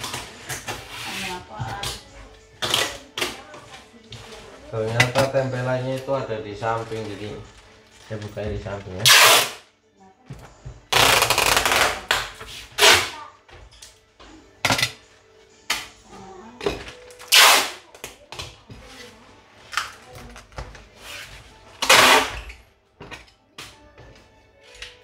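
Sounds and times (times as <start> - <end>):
packing tape tearing: 9.0 - 9.7, 10.9 - 13.2, 17.1 - 18.1, 21.8 - 22.5.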